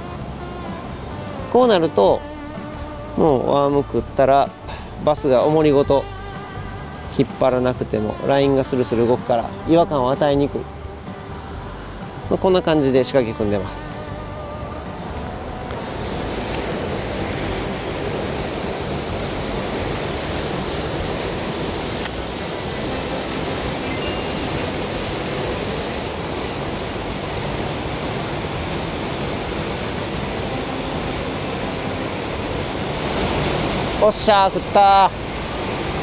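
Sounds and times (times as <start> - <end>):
water rushing over weir: 14.8 - 36.0.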